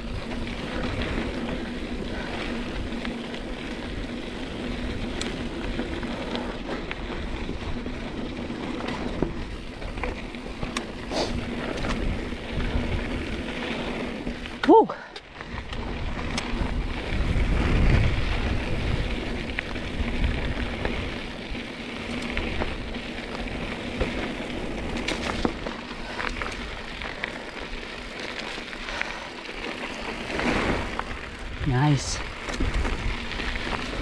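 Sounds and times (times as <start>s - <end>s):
wind rumbling on microphone: 0.0s - 14.7s, 15.3s - 34.0s
tyres crackling on dirt: 0.0s - 34.0s
bike clicks and knocks: 8.1s - 13.3s, 19.3s - 31.4s.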